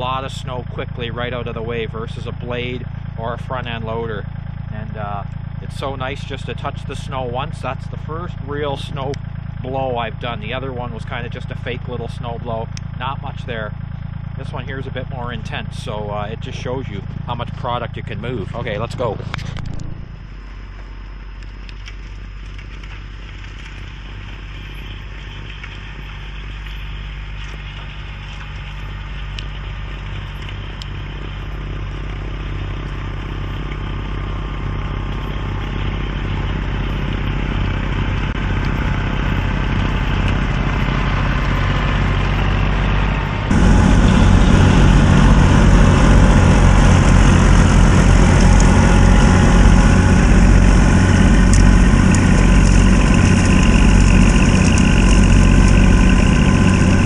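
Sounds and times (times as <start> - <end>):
tractor diesel engine under load: 0.0 - 57.0
snow blower throwing snow: 27.2 - 57.0.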